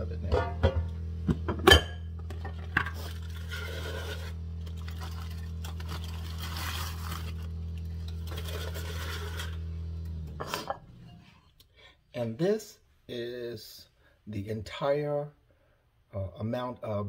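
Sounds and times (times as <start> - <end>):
steady low hum: 0.0 - 12.6
aluminium foil crinkling: 2.5 - 9.7.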